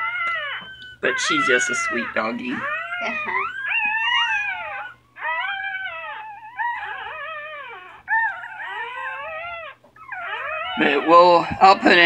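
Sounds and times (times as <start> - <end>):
puppies whining: 0.0 - 12.0.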